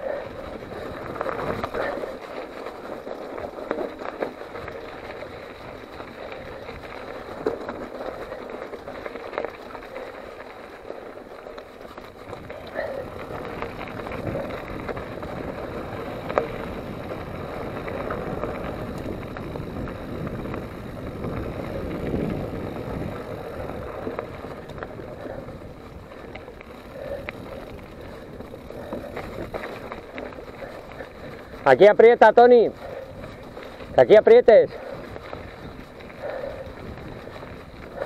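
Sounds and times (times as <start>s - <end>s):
bicycle tyres rolling on dirt: 0.0s - 38.0s
bike knocks and rattles: 0.6s - 31.8s
wind on microphone: 12.0s - 31.7s, 34.7s - 38.0s.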